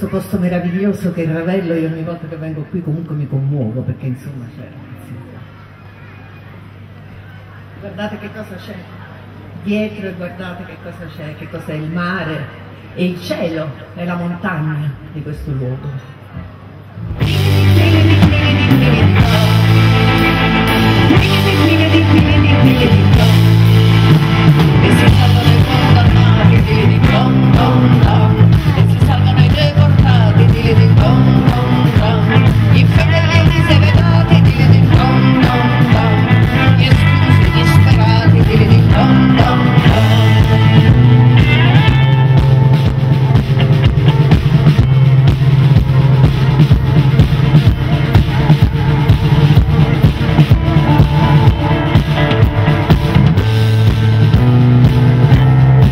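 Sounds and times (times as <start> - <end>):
live rock band playing: 17.0 - 55.9
woman singing: 17.5 - 20.3, 21.0 - 23.9, 24.8 - 40.9.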